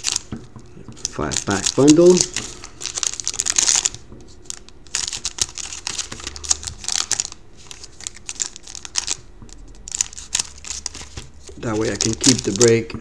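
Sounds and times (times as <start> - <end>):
foil wrapper crinkling: 0.0 - 0.3, 1.0 - 12.8
scissors snipping foil pack: 0.0 - 0.3, 1.0 - 3.9, 9.8 - 12.8.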